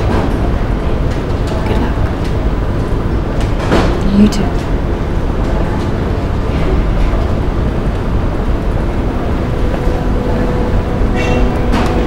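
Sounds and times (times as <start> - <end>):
ferry engines rumbling: 0.0 - 12.0.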